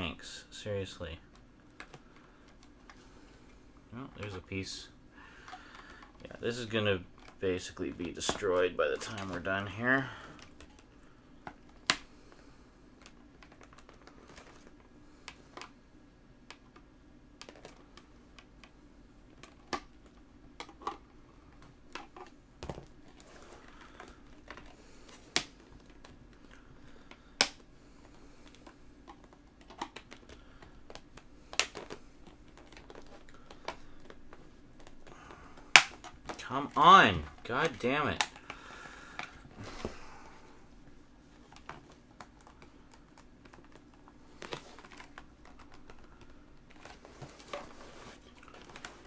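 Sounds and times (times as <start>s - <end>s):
plastic case clicking and cracking: 16.5s - 18.7s, 28.4s - 36.4s.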